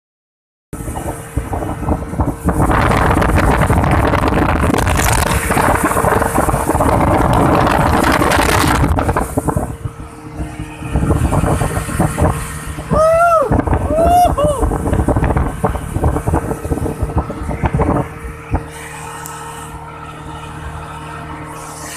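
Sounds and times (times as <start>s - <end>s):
wind buffeting the microphone: 0.8s - 19.1s
outboard motor running: 0.8s - 21.9s
water rushing past a hull: 0.8s - 21.9s.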